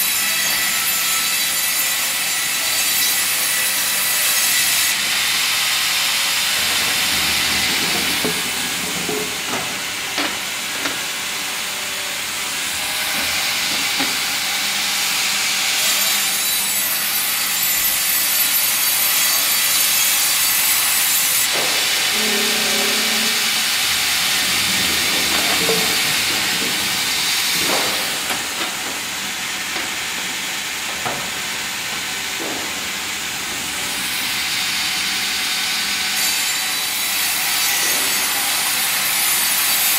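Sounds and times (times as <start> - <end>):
band saw cutting log: 0.0 - 39.9
machinery knocks: 6.6 - 11.1, 21.5 - 22.2, 23.9 - 33.0.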